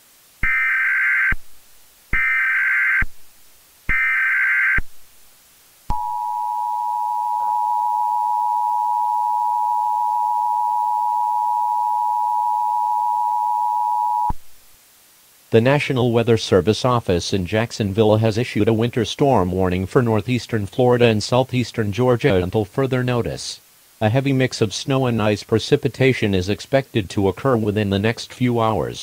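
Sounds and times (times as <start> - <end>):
two-tone attention signal: 5.9 - 14.3.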